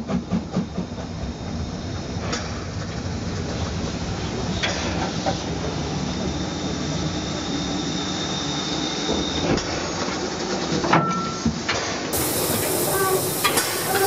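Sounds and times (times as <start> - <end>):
steam train rumbling on track: 0.0 - 14.0
high squeal: 5.9 - 10.1.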